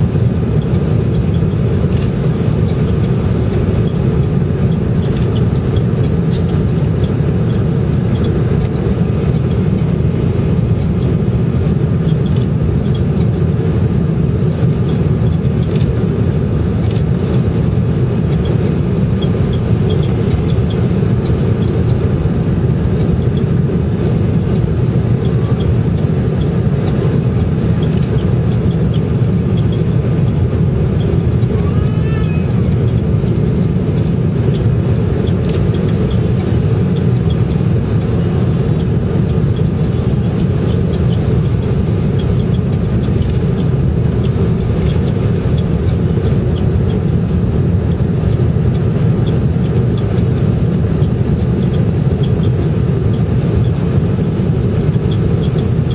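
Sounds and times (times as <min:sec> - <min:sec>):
jet airliner cabin roar: 0:00.0 - 0:55.9.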